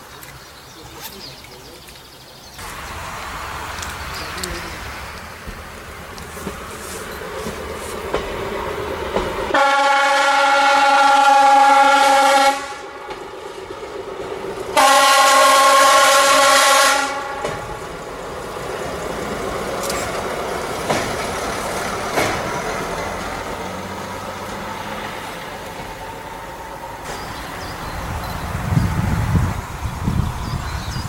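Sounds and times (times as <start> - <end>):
train rumbling across viaduct: 0.0 - 31.0
train horn blasts: 9.5 - 13.2, 14.7 - 17.8.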